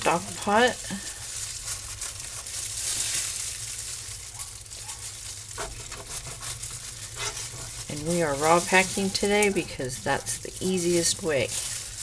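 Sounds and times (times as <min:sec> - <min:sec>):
plastic gloves crinkling: 0:00.0 - 0:12.0
knife scraping meat: 0:05.5 - 0:12.0.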